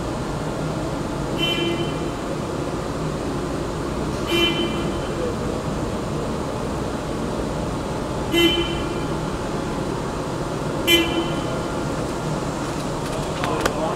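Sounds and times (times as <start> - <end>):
printing press running: 11.4 - 13.9.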